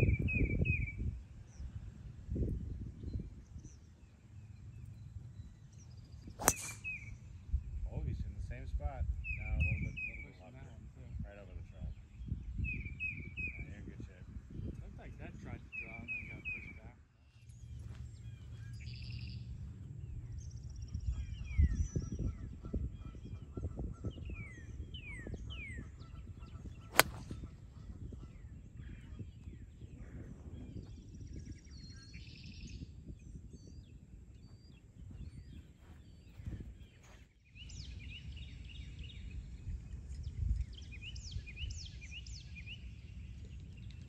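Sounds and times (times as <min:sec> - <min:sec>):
wind rumble on microphone: 0:00.0 - 0:44.0
birds chirping: 0:03.1 - 0:07.4, 0:24.5 - 0:32.3, 0:33.8 - 0:44.0
golf club striking ball: 0:06.4 - 0:07.0, 0:26.9 - 0:27.4.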